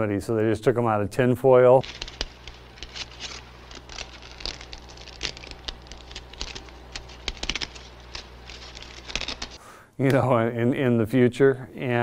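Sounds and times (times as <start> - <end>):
low steady hum: 0.0 - 12.0
aluminium foil crinkling: 1.8 - 9.6.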